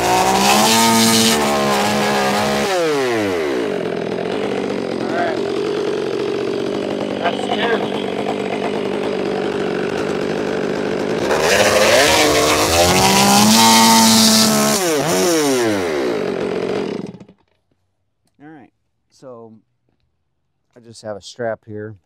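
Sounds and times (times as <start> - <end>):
chainsaw idling and revving: 0.0 - 17.6.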